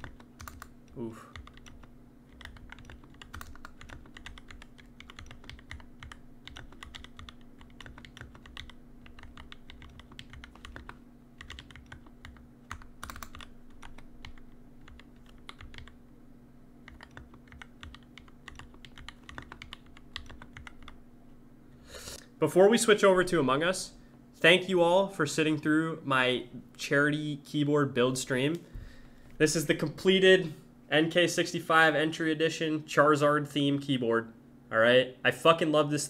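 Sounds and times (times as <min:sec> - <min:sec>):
rapid mechanical keyboard typing: 0:00.0 - 0:16.0, 0:16.8 - 0:21.0
faint steady hum: 0:00.0 - 0:36.0.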